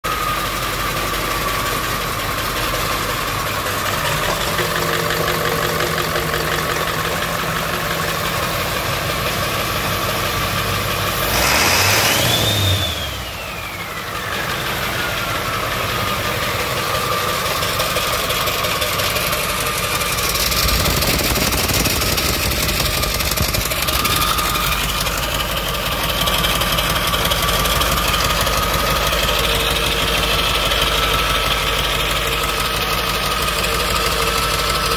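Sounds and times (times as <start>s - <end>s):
diesel engine idling and revving: 0.0s - 34.9s
turbo whine: 11.2s - 34.9s.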